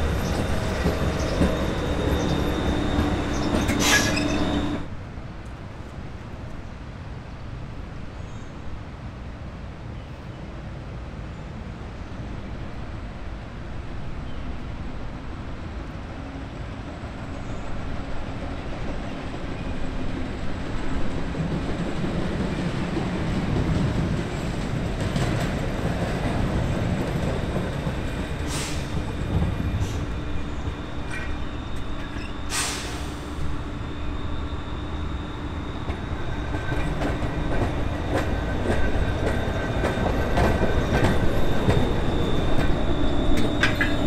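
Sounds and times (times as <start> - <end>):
streetcar rumbling on rails: 0.0 - 44.0
high-pitched wheel squeals: 0.1 - 4.8, 28.5 - 44.0.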